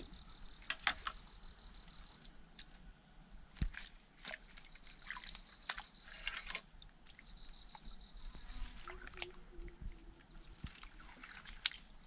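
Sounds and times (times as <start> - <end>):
water drips: 3.5 - 12.0
hands splashing in shallow water: 10.5 - 11.9.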